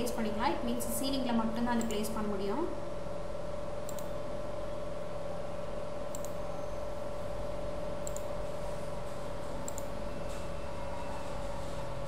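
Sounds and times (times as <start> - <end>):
steady electrical hum and hiss: 0.0 - 12.0
computer mouse clicking: 3.8 - 4.2, 6.1 - 6.4, 8.0 - 8.3, 9.6 - 10.5.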